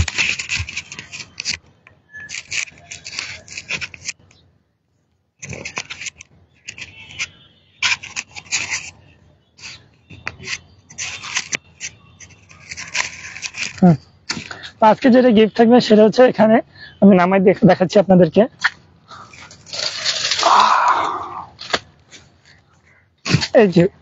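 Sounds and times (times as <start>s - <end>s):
microphone handling scratches: 0.0s - 4.2s, 5.4s - 14.5s.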